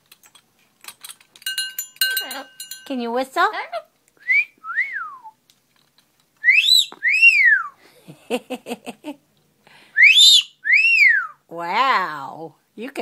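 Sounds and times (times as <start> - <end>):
parrot wolf whistle: 4.2 - 5.4, 6.4 - 7.8, 10.0 - 11.4.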